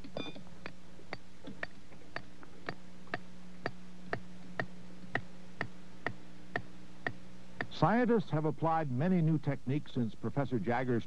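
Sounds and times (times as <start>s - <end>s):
regular ticking: 0.0s - 8.4s
low hum: 0.0s - 11.0s.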